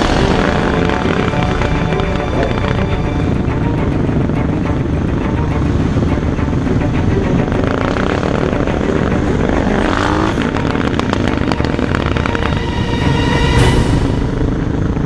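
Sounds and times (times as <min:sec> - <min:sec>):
motorcycle engines running: 0:00.0 - 0:15.0
steady pitched tone: 0:00.0 - 0:15.0
wind rumble: 0:00.0 - 0:15.0.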